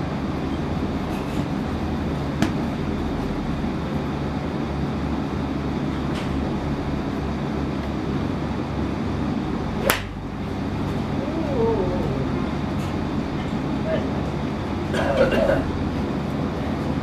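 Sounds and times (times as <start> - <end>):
steady low rumble: 8.2 - 14.9
golf club striking ball: 9.8 - 10.2.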